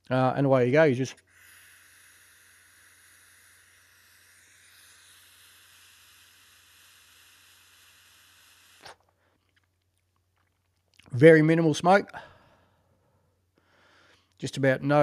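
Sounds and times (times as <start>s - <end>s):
inhalation hiss through mouthpiece: 1.2s - 9.4s.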